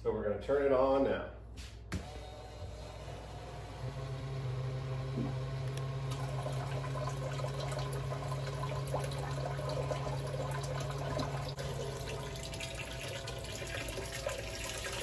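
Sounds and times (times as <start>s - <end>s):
pump humming: 2.0s - 15.0s.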